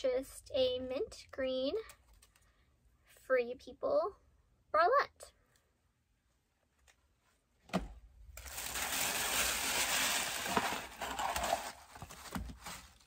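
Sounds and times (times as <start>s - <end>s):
packaging rustling and crinkling: 8.4s - 13.0s.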